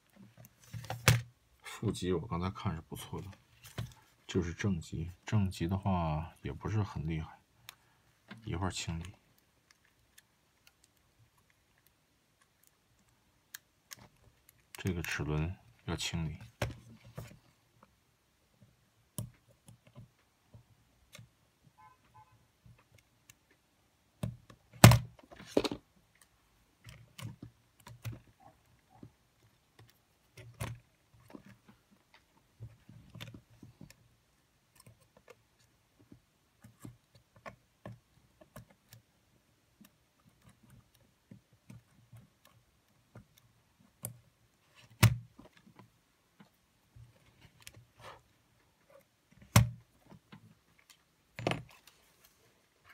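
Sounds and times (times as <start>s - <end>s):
small clicks of tweezers and parts: 7.6s - 15.2s, 34.7s - 39.1s.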